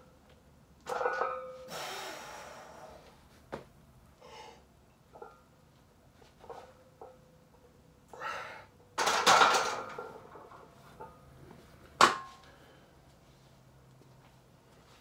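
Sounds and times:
person exhaling hard: 0:01.7 - 0:03.0.

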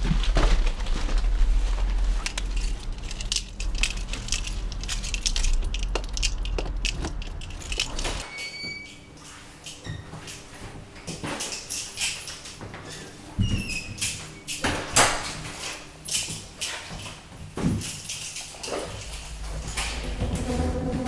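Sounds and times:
irregular crunching and crackling: 0:00.0 - 0:08.2
low rumble: 0:19.1 - 0:21.0.

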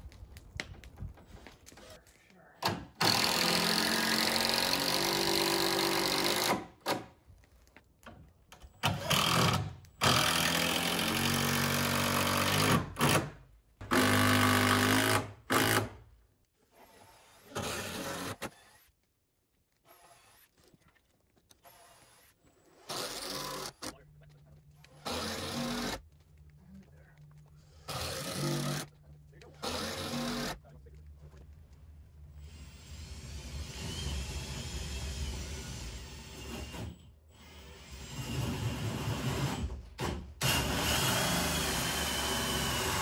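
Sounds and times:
power drill drilling into wood: 0:03.0 - 0:07.0, 0:08.8 - 0:16.0, 0:16.7 - 0:18.9, 0:21.6 - 0:23.9, 0:25.0 - 0:26.0, 0:27.9 - 0:28.9, 0:29.6 - 0:30.6, 0:32.4 - 0:39.7, 0:40.4 - 0:43.0.

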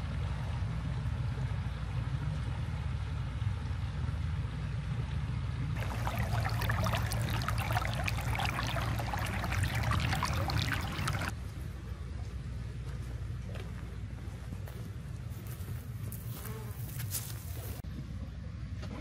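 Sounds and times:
stream splashing over stones: 0:05.8 - 0:11.3.

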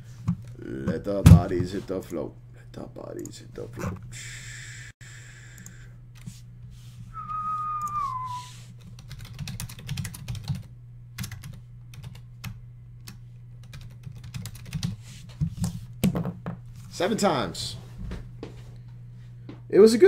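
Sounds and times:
steady low hum: 0:00.0 - 0:20.0
whistled note sliding down: 0:07.1 - 0:08.6
computer keyboard typing: 0:09.0 - 0:12.6, 0:13.6 - 0:15.0.

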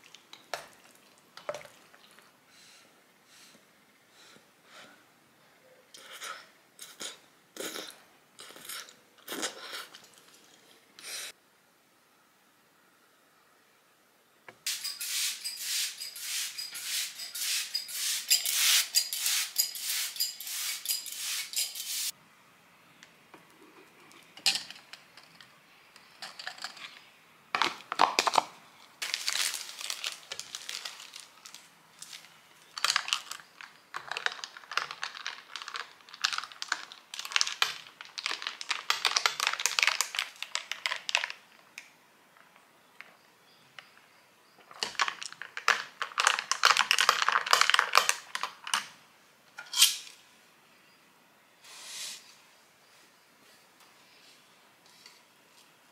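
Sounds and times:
spray mister hissing puffs: 0:14.7 - 0:22.1, 0:51.6 - 0:52.4
paper crinkling and tearing: 0:29.0 - 0:41.3.

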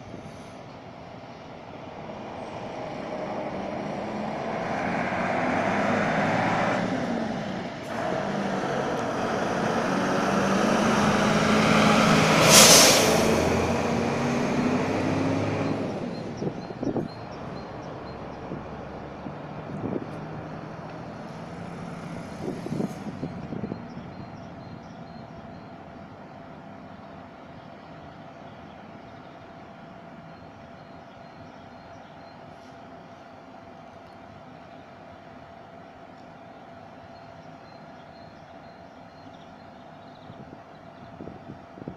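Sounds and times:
fire engine diesel engine: 0:00.0 - 0:41.9
air brakes hissing: 0:12.4 - 0:13.7.

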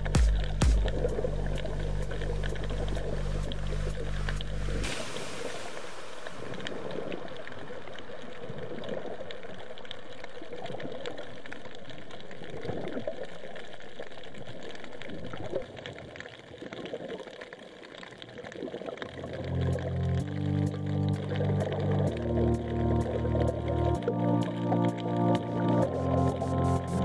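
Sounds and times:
background music: 0:00.0 - 0:04.9, 0:19.3 - 0:27.0
underwater bubbling and gurgling: 0:00.0 - 0:27.0.

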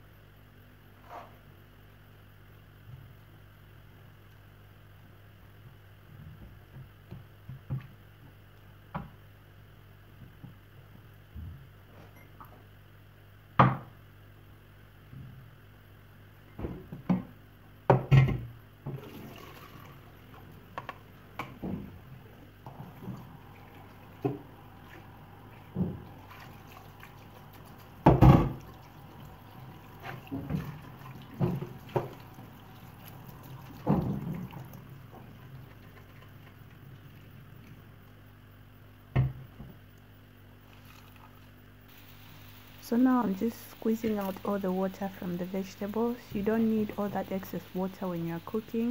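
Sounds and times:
tap water pouring: 0:18.9 - 0:21.0, 0:22.6 - 0:37.8, 0:40.6 - 0:48.9.

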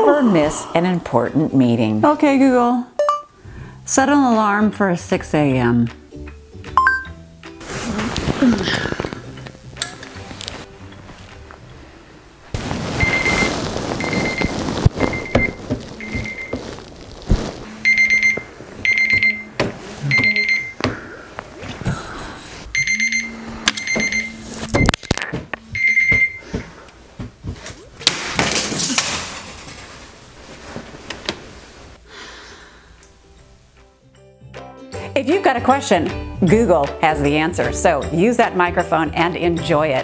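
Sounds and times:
smartphone alarm beeping: 0:03.0 - 0:03.3, 0:06.8 - 0:07.2, 0:13.0 - 0:16.6, 0:17.8 - 0:20.8, 0:22.8 - 0:24.9, 0:25.8 - 0:26.5
rustling: 0:12.5 - 0:20.6, 0:27.3 - 0:32.0
thumps: 0:12.6 - 0:21.0.

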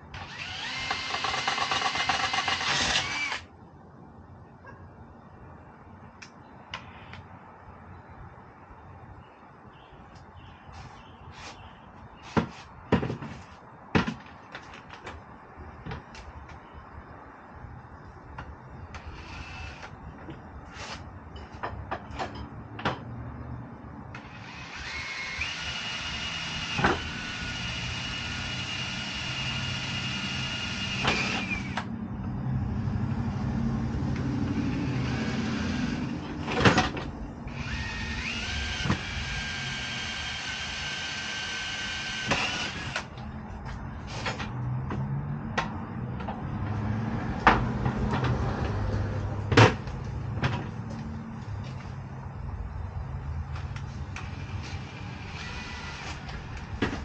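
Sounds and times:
cordless drill whine: 0:00.1 - 0:03.5, 0:19.0 - 0:19.9, 0:24.2 - 0:31.9, 0:37.5 - 0:43.1, 0:54.2 - 0:56.4.

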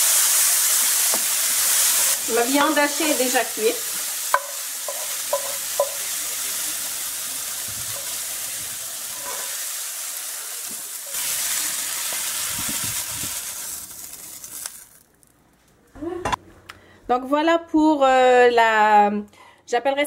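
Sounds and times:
frying pan sizzling: 0:00.0 - 0:15.3
wooden spoon knocking pan: 0:04.3 - 0:06.0.

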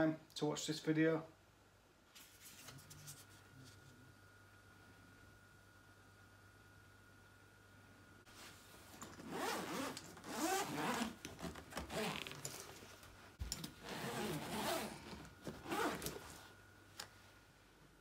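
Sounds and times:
zip being pulled: 0:09.2 - 0:12.5, 0:13.8 - 0:16.3.

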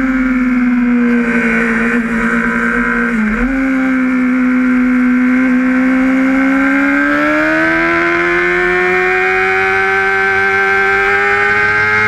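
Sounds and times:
motorcycle engine at high revs: 0:00.0 - 0:12.0.

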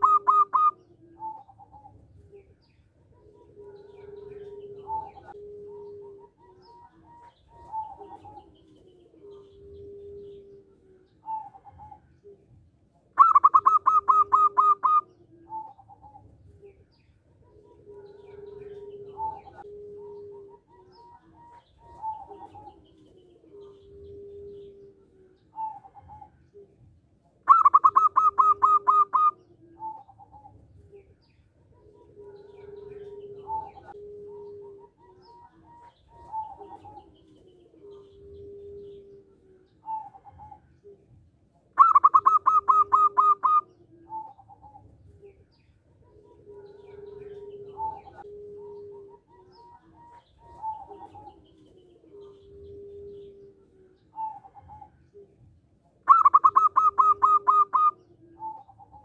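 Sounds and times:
dove rapid staccato coos: 0:00.0 - 0:01.9, 0:13.2 - 0:16.1, 0:27.5 - 0:30.5, 0:41.8 - 0:44.8, 0:56.1 - 0:59.0
dove soft low cooing: 0:00.0 - 0:59.0.

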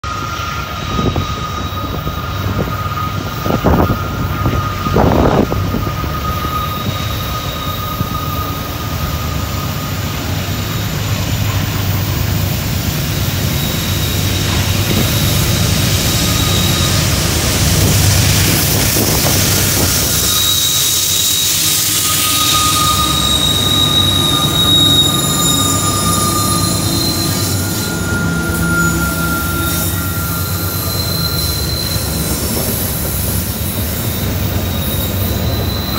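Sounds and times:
locomotive engine rumble: 0:00.1 - 0:35.9
thin high whine: 0:13.6 - 0:33.6.

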